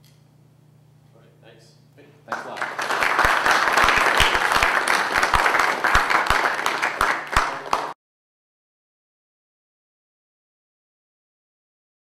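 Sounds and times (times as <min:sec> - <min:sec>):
audience applauding: 0:02.3 - 0:08.0.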